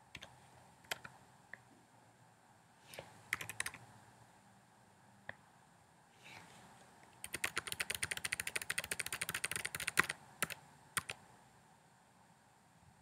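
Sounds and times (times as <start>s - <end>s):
computer keyboard typing: 0.9s - 1.1s, 3.3s - 3.8s, 7.2s - 11.2s.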